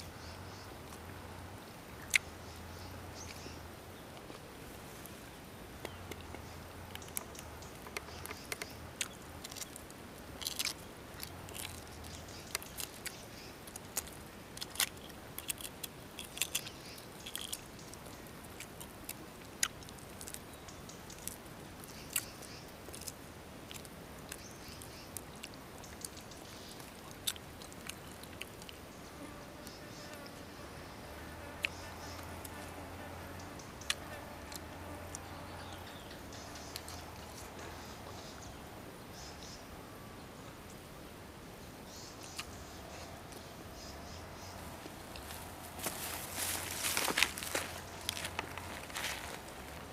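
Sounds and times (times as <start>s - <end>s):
faint steady hiss: 0.0s - 49.9s
eggshell peeling crackles: 5.8s - 28.9s, 44.7s - 49.9s
person chewing: 7.0s - 9.8s, 10.4s - 17.8s, 18.5s - 20.4s, 25.3s - 28.8s.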